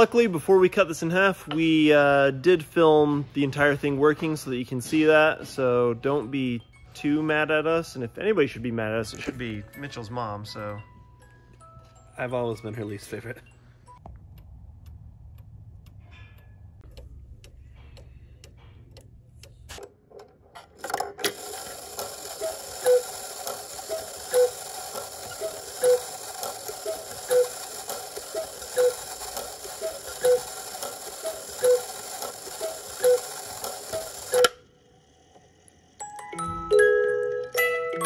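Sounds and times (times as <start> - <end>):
clock ticks and clicks: 14.0 - 20.3, 20.9 - 34.6
regular mechanical clack: 14.0 - 34.6
gear train whirring: 14.2 - 36.1.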